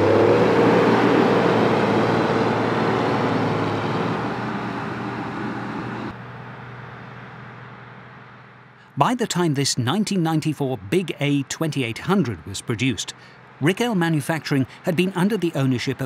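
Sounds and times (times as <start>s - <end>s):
diesel engine running at high revs: 0.0s - 8.5s.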